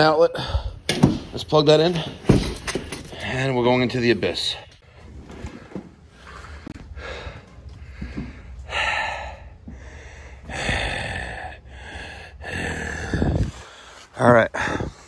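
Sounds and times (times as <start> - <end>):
man breathing hard: 0.3 - 0.9, 6.1 - 15.0
knocks and rustling: 2.0 - 3.2.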